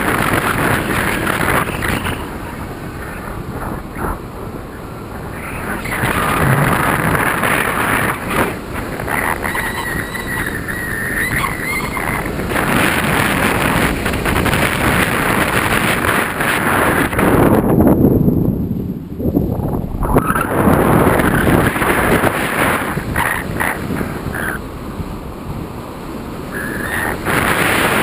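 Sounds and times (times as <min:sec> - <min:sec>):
wind rushing over microphone: 0:00.0 - 0:28.0
faint wavering whistle: 0:09.5 - 0:12.2.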